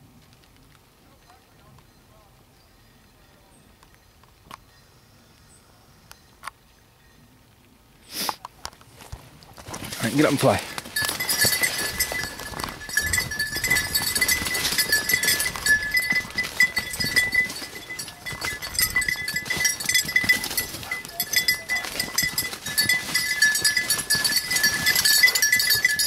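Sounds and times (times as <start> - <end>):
dry cornstalks rustling: 8.1 - 26.0
dog bell jingling: 9.7 - 26.0.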